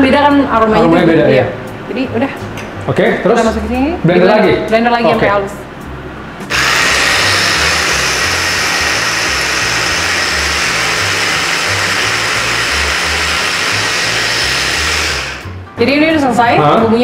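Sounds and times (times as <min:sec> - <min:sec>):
electric blender motor running: 0:06.5 - 0:15.6.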